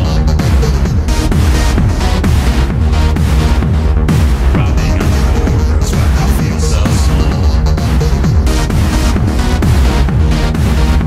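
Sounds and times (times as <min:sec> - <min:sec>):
kick drum beat: 0:00.0 - 0:11.0
layered synthesizer tones: 0:00.0 - 0:11.0.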